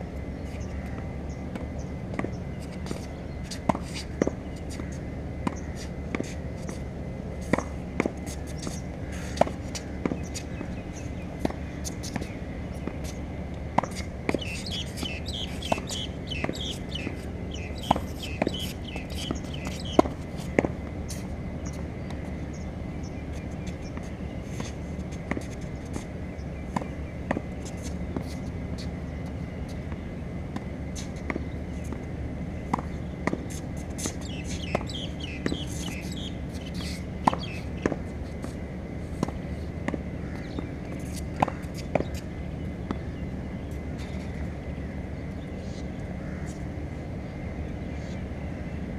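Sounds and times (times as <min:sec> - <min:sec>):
racket hitting tennis ball: 0:01.5 - 0:22.8, 0:32.7 - 0:42.3.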